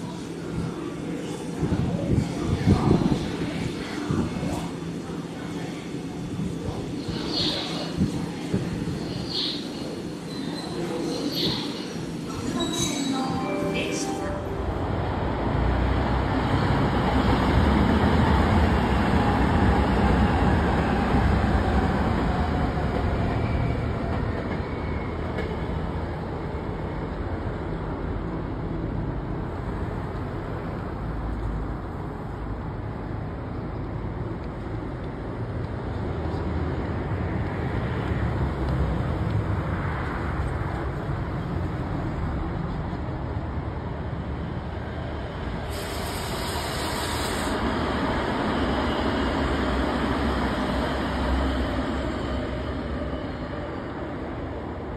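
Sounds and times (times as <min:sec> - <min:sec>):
train wheels rumbling on rail: 0:14.9 - 0:54.9.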